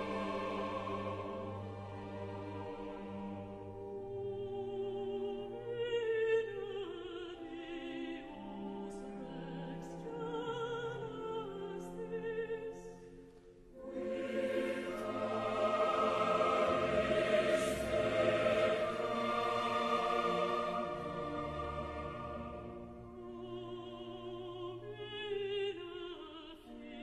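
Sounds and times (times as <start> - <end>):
classical music with singing voice: 0.0 - 27.0.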